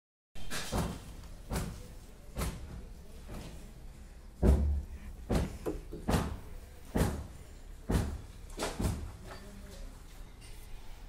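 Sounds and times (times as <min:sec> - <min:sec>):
sharp knocks and bumps: 0:04.4 - 0:09.2.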